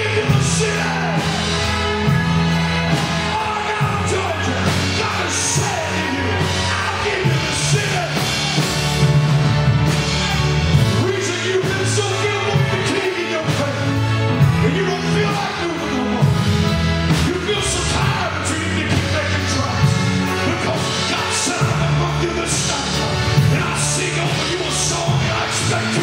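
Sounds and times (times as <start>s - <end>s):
bass notes: 0.0s - 26.0s
drum kit: 0.0s - 26.0s
person singing: 17.3s - 26.0s.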